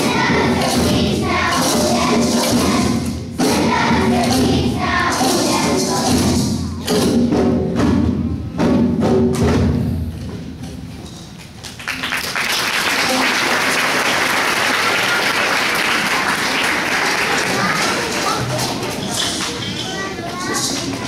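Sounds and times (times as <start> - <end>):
crowd noise: 0.0 - 6.9, 11.0 - 21.0
children's choir with xylophones: 0.0 - 9.1, 17.3 - 21.0.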